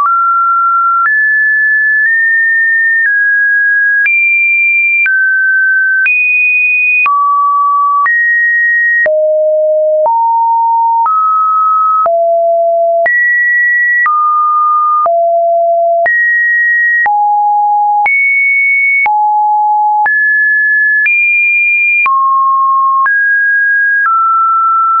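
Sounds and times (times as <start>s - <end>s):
sine wave test tones: 8.9s - 13.4s, 14.0s - 20.2s.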